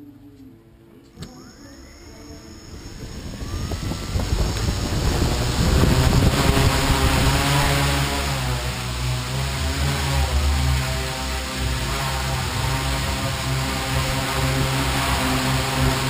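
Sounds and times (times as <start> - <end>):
helicopter rotor whir: 1.2 - 16.0
thin rising whine: 1.2 - 16.0
wind buffeting microphone: 2.3 - 9.2.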